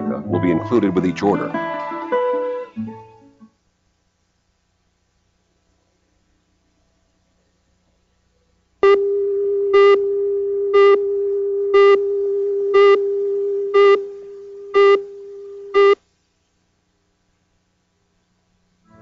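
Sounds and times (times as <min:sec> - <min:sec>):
short beeps: 0:08.8 - 0:10.1, 0:10.7 - 0:11.0, 0:11.7 - 0:12.1, 0:12.7 - 0:13.1, 0:13.7 - 0:14.0, 0:14.8 - 0:15.1, 0:15.7 - 0:16.0
steady electronic tone: 0:08.8 - 0:16.0.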